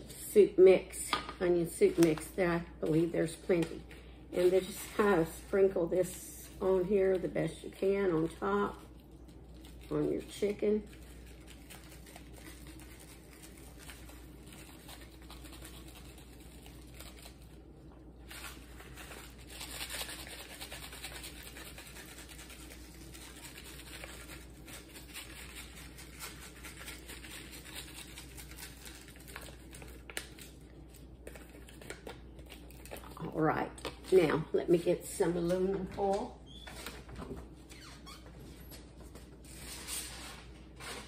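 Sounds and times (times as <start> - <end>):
paper packet rustling: 4.4 - 33.2
dry flakes pattering: 4.5 - 17.6.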